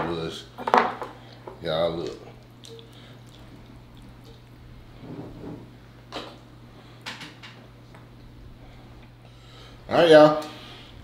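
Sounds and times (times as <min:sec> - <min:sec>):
wet squelching: 0:02.0 - 0:04.6.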